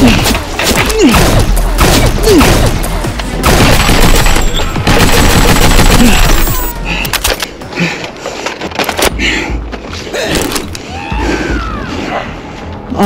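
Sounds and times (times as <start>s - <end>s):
background music: 0.0s - 13.0s
gunfire bursts: 1.0s - 6.7s.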